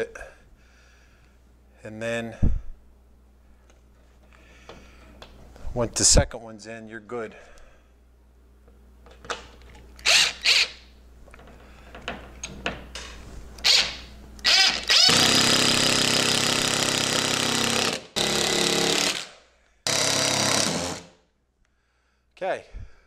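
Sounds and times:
cordless drill driving screw: 10.0s - 10.8s, 13.6s - 19.3s, 19.9s - 21.1s.

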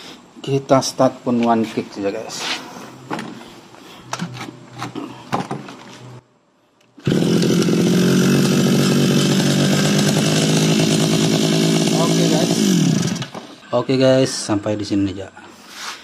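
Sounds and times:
brush cutter engine running: 7.0s - 13.6s.

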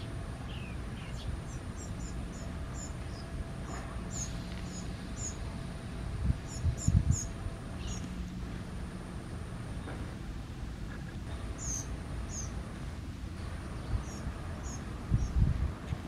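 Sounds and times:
bird begging chirps: 11.6s - 12.6s.

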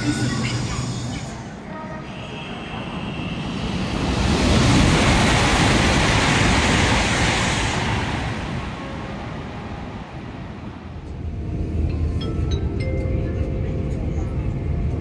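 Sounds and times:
high-speed train passing: 0.0s - 15.0s.

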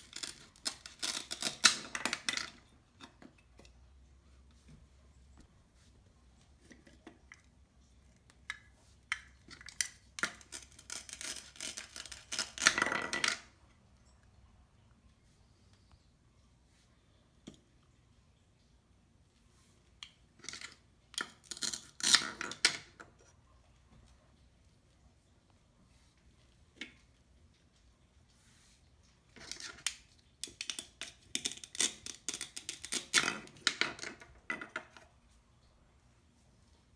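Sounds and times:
velcro ripping apart: 0.0s - 2.0s, 10.4s - 12.8s.

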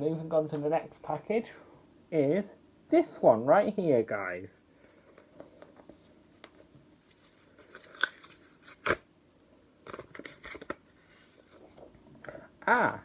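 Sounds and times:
card and paper crinkling and tearing: 5.4s - 9.1s, 9.8s - 11.9s.

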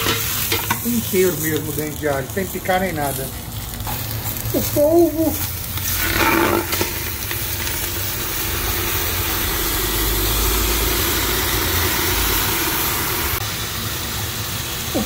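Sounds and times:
food sizzling in hot oil: 0.0s - 15.0s.

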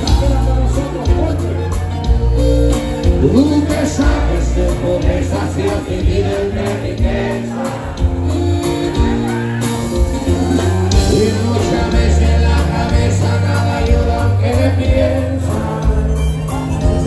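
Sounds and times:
button accordion: 0.0s - 9.4s
acoustic guitar: 0.0s - 17.0s
drums: 0.0s - 17.0s.

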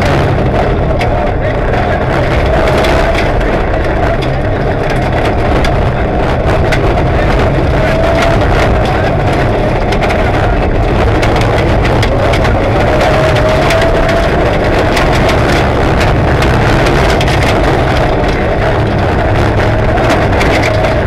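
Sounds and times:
car engine running hard: 0.0s - 21.0s
engine whine: 0.0s - 21.0s
gravel rattling against underbody: 0.0s - 21.0s.

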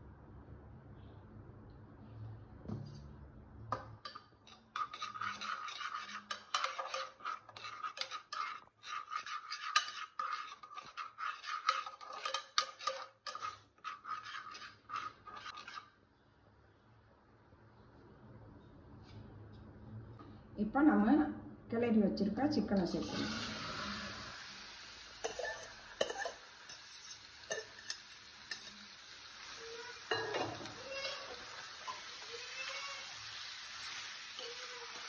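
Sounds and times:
ladle scraping a pot: 4.0s - 16.0s, 25.2s - 35.0s.

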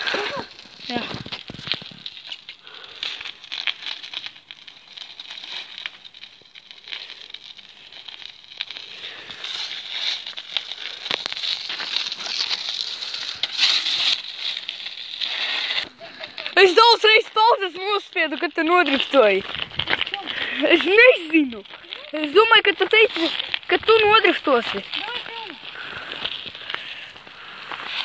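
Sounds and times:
snow crunching: 0.0s - 3.0s, 8.7s - 28.0s.

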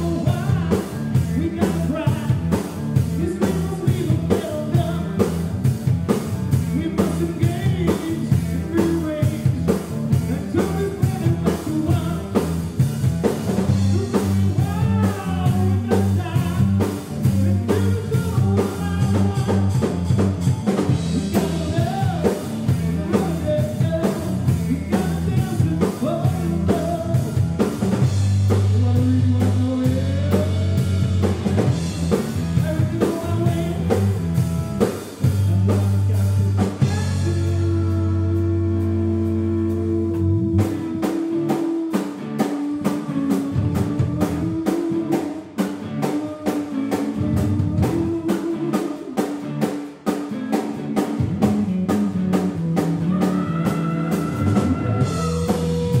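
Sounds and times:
man singing: 0.0s - 5.6s, 6.5s - 12.9s, 13.6s - 51.5s, 52.9s - 56.0s
bass guitar: 0.0s - 56.0s
driving drum beat: 0.0s - 56.0s
electric guitar: 0.0s - 56.0s.

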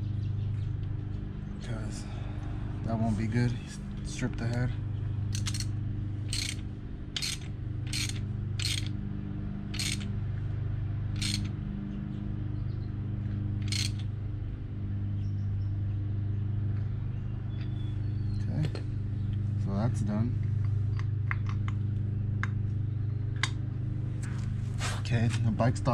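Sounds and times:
steady low hum: 0.0s - 25.9s
socket ratchet clicking: 5.3s - 5.7s, 6.3s - 6.6s, 7.2s - 8.9s, 9.7s - 10.1s, 11.2s - 11.5s, 13.6s - 14.0s.

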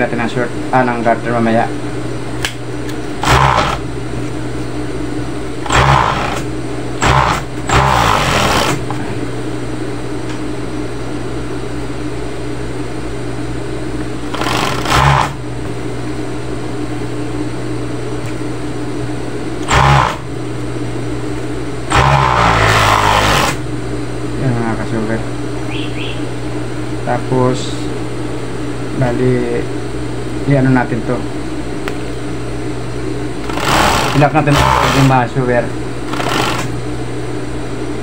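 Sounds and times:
sewing machine stitching: 3.2s - 3.8s, 5.6s - 8.8s, 14.3s - 15.4s, 19.6s - 20.2s, 21.9s - 23.6s, 33.4s - 35.2s, 36.1s - 36.7s.

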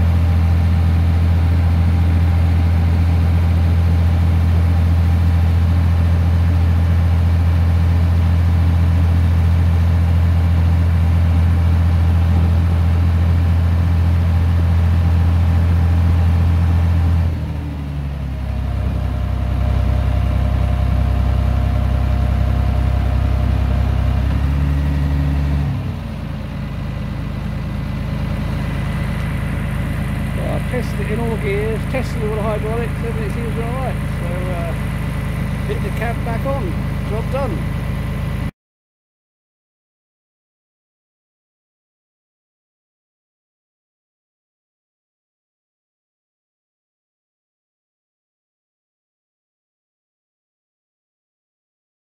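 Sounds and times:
tractor diesel engine running: 0.0s - 38.5s.

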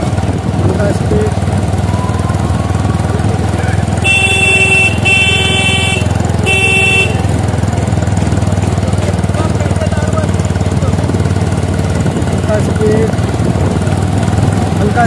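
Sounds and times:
motorcycle engine running: 0.0s - 15.0s
vehicle horn honking: 3.9s - 7.6s.

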